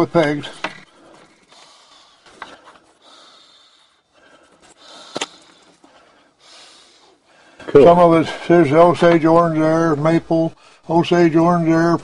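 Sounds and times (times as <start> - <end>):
wooden parts knocking and rubbing: 0.0 - 1.5.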